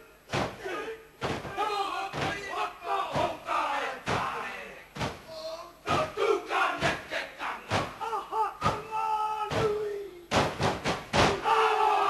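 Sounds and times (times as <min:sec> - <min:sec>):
group shouted chanting: 0:00.0 - 0:10.0, 0:11.1 - 0:12.0
slaps and stamps: 0:00.3 - 0:00.6, 0:01.2 - 0:02.4, 0:03.1 - 0:03.4, 0:05.0 - 0:05.2, 0:07.7 - 0:08.0, 0:09.5 - 0:11.4.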